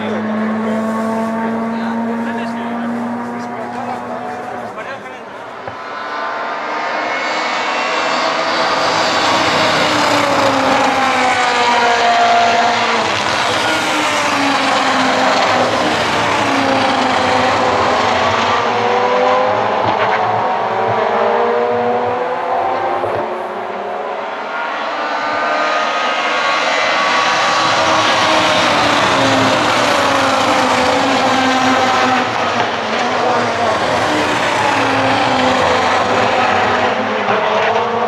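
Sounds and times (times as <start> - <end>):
rally car engines revving: 0.0 - 38.0.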